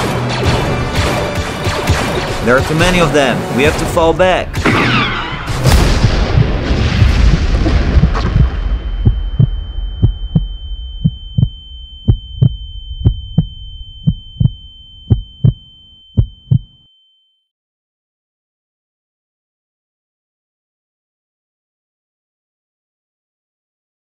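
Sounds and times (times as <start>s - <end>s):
explosion rumble: 4.6s - 14.4s
heartbeat thuds: 5.7s - 16.8s
high ear-ringing tone: 8.5s - 17.4s.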